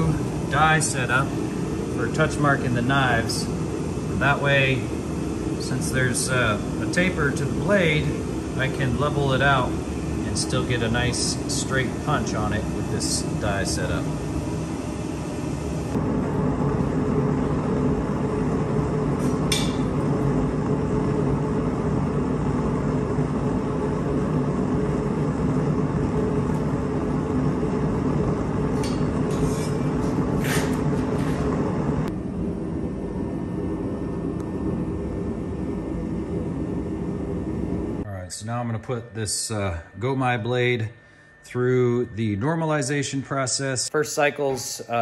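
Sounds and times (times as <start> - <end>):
machine hum: 0.0 - 45.0.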